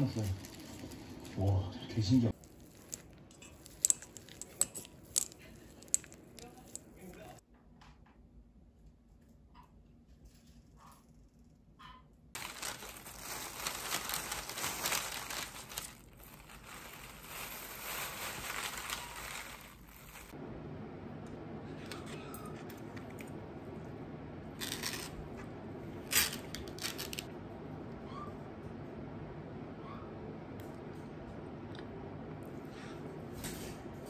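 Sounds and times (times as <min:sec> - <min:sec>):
plastic glove crinkling: 0:00.0 - 0:01.6, 0:02.3 - 0:07.4, 0:12.4 - 0:20.4
steady low hum: 0:19.8 - 0:34.0.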